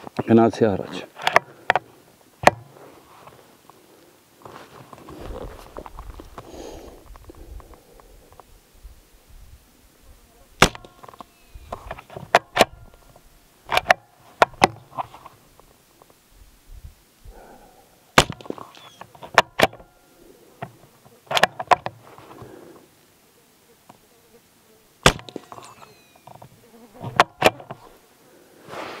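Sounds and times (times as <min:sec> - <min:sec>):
rifle shots: 0:10.6 - 0:11.1, 0:18.2 - 0:18.5, 0:25.0 - 0:25.9.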